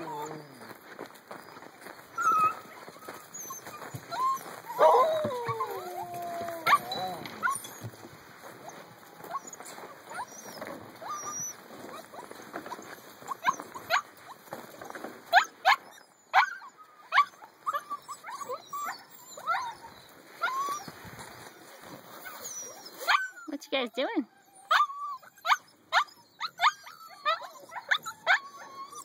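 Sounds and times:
puppies yipping and squealing: 0:00.0 - 0:29.0.

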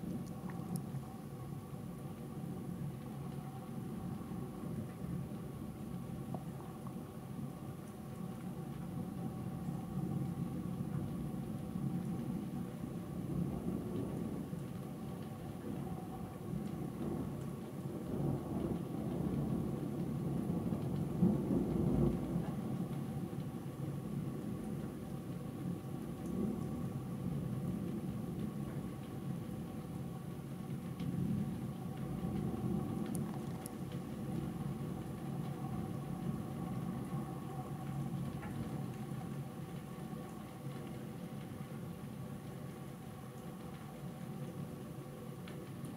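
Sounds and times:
faint steady hum: 0:00.0 - 0:45.9
thunder rumbling: 0:31.1 - 0:39.4.

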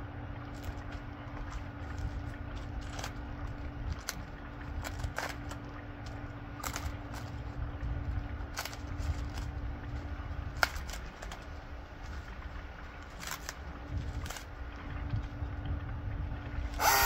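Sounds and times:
low machine hum: 0:00.0 - 0:17.0
sharp cracks and snaps: 0:00.5 - 0:07.6, 0:08.3 - 0:14.6.

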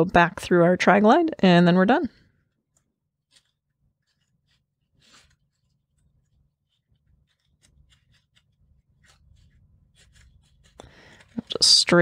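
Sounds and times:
webbing rustling and scratching: 0:02.3 - 0:12.0.

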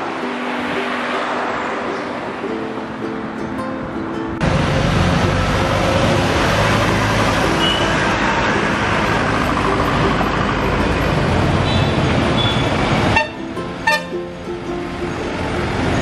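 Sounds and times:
tyre and road noise: 0:00.0 - 0:16.0
light truck driving past: 0:04.4 - 0:16.0.

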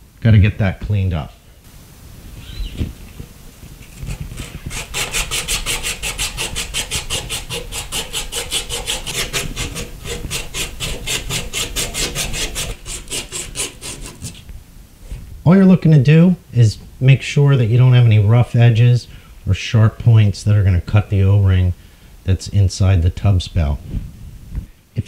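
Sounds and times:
abrasive cloth rasping on pipe: 0:03.9 - 0:14.5.

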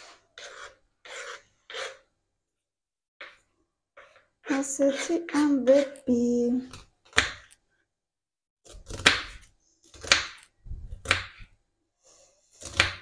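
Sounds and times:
knife chopping on wooden board: 0:06.7 - 0:07.6, 0:08.7 - 0:11.5, 0:12.6 - 0:13.0.

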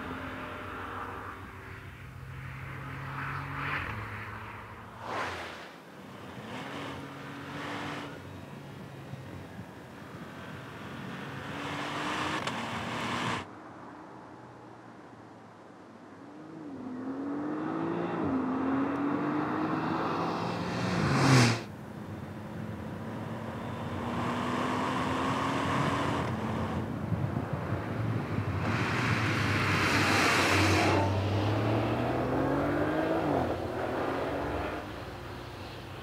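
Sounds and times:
car passing by: 0:00.0 - 0:08.2, 0:16.8 - 0:21.7, 0:28.0 - 0:36.0
car engine accelerating hard: 0:28.4 - 0:35.3.

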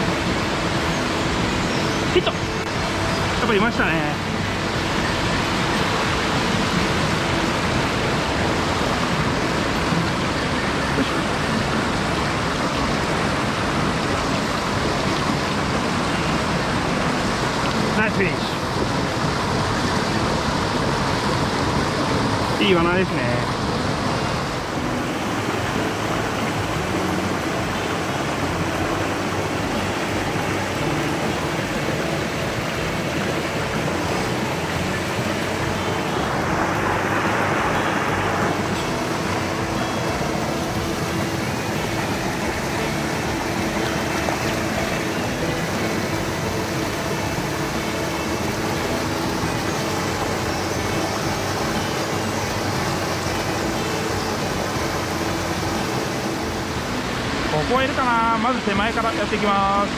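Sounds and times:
mountain stream rushing: 0:00.0 - 0:59.9.

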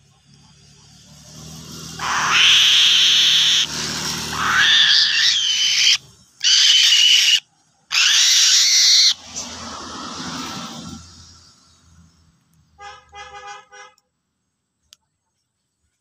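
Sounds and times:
eagle chick screaming calls: 0:02.0 - 0:09.2.

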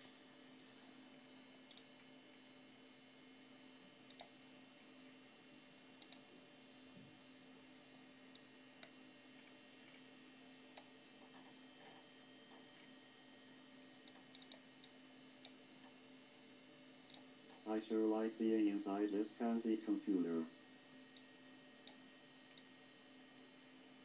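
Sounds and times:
steady low hum: 0:00.0 - 0:24.0
computer mouse clicks: 0:01.7 - 0:01.9, 0:04.1 - 0:04.3, 0:06.0 - 0:06.2, 0:14.0 - 0:15.6, 0:17.1 - 0:17.3, 0:21.2 - 0:22.6.

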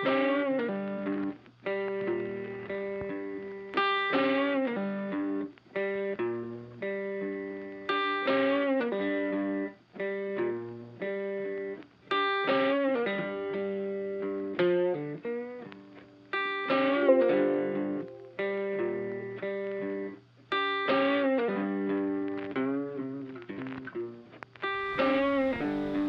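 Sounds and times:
guitar playing short phrases: 0:16.8 - 0:19.4, 0:24.7 - 0:26.0.

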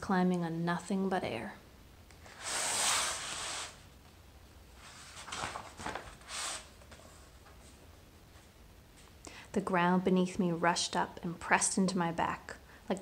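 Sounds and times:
paper rustling: 0:04.8 - 0:07.8.

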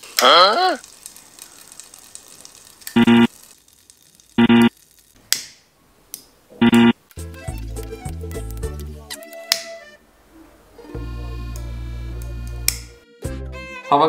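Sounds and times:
short electronic tones: 0:03.0 - 0:03.3, 0:04.4 - 0:04.7, 0:06.6 - 0:07.0
music track with bass line: 0:06.6 - 0:09.2, 0:10.9 - 0:13.8.

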